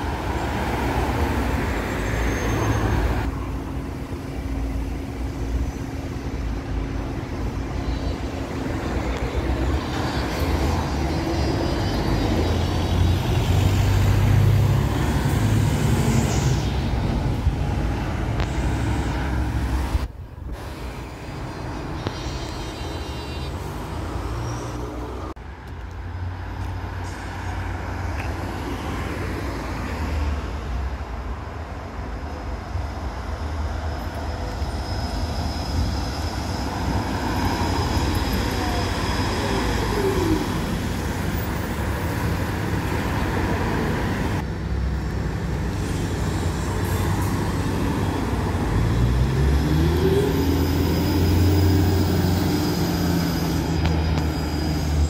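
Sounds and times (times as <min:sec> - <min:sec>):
traffic tyre rumble: 0:00.0 - 0:55.0
electric traction drive whine: 0:03.2 - 0:24.6.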